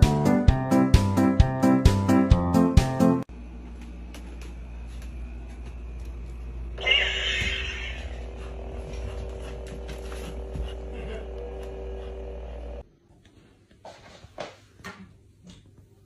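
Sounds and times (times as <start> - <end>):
lightsaber humming: 6.6 - 9.1.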